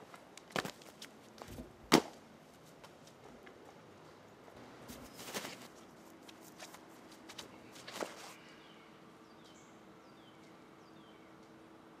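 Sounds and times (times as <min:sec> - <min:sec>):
faint steady hum: 0:00.0 - 0:12.0
footsteps on grass: 0:04.9 - 0:08.4
bird chirping: 0:08.3 - 0:11.5.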